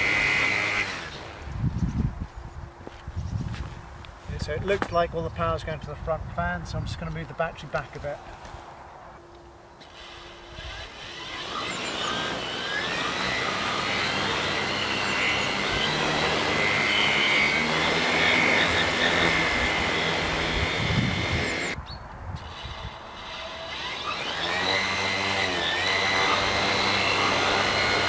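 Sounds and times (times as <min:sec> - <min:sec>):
drone motors whining: 0:00.0 - 0:02.1, 0:09.2 - 0:21.8, 0:22.4 - 0:28.0.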